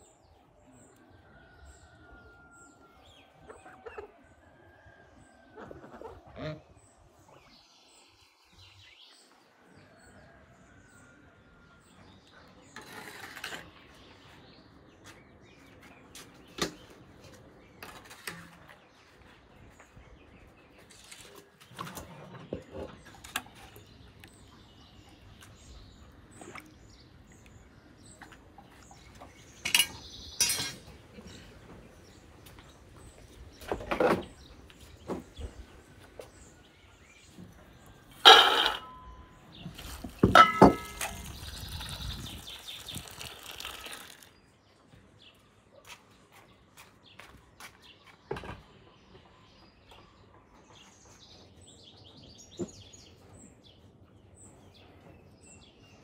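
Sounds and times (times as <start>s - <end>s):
ladle clinking on steel bowls: 29.6s - 30.9s, 38.2s - 39.2s, 40.2s - 41.4s.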